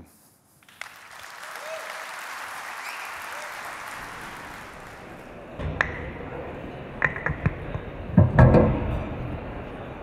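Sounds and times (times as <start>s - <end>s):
audience applause: 0.6s - 5.4s.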